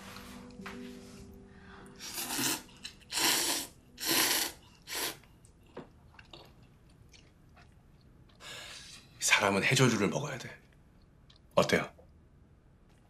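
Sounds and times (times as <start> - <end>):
person slurping noodles: 2.0 - 5.3.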